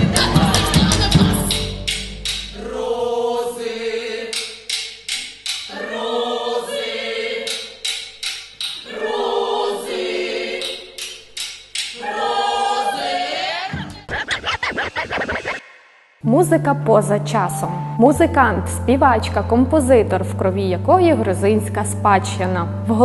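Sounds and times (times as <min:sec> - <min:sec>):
sharp percussive hits: 0:00.0 - 0:02.6
women singing held notes: 0:05.7 - 0:07.8, 0:08.7 - 0:11.0, 0:11.9 - 0:13.9.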